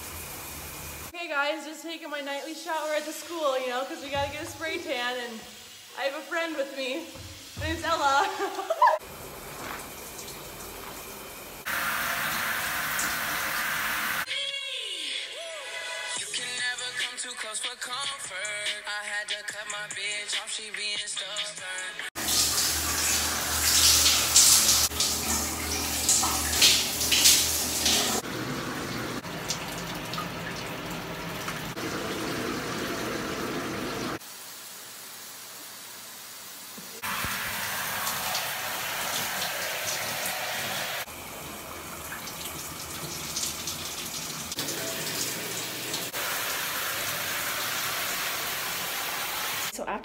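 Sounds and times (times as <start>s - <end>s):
shower spray splashing: 2.2s - 14.3s, 22.2s - 41.2s, 42.1s - 49.7s.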